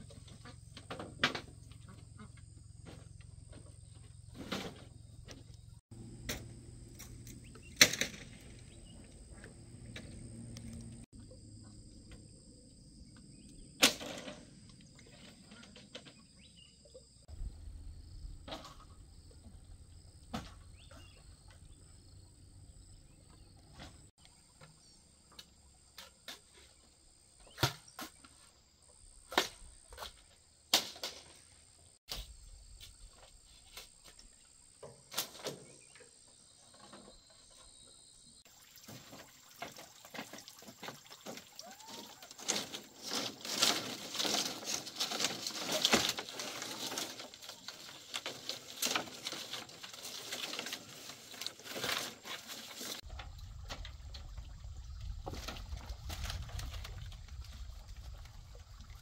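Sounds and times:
bamboo strips clattering: 6.3s - 8.7s, 38.9s - 53.9s, 55.2s - 58.2s.

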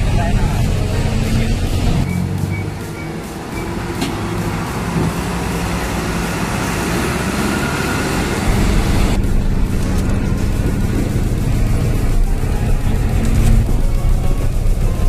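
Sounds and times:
road noise: 0.0s - 15.0s
truck diesel engine running: 0.0s - 15.0s.

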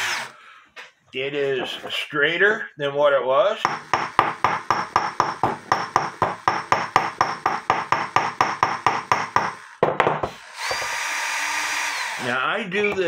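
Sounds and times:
hammer tapping on metal: 3.7s - 10.4s.

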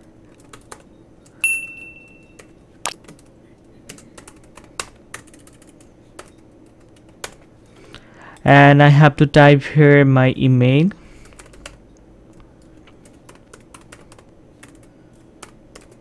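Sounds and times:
keyboard keys clicking: 3.9s - 7.4s, 12.6s - 16.0s.

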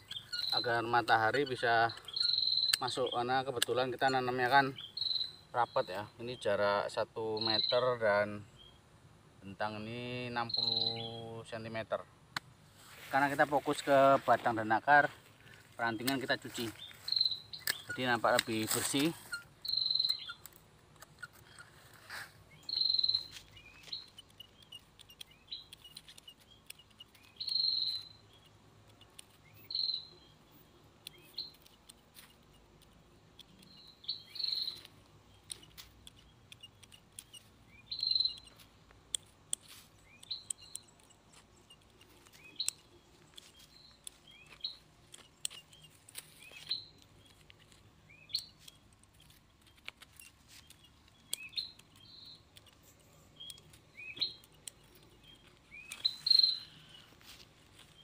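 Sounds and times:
pruning shears snipping: 0.0s - 4.6s, 15.8s - 22.4s, 31.0s - 58.0s
leaves rustling: 12.6s - 28.2s, 38.5s - 58.0s.

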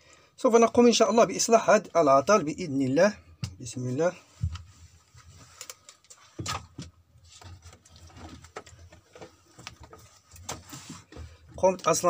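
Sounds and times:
light clicks and knocks of handling: 4.4s - 12.0s.

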